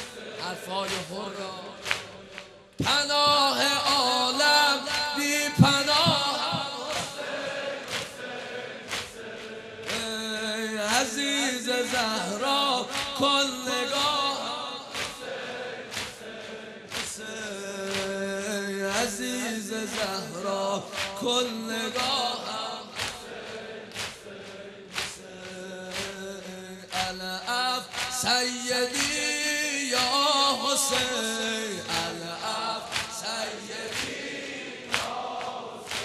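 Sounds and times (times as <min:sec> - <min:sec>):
man singing a lament: 0:00.0 - 0:02.2, 0:02.8 - 0:07.9, 0:09.9 - 0:15.6, 0:17.0 - 0:23.6, 0:25.1 - 0:34.7
crowd of men chanting: 0:00.0 - 0:36.0.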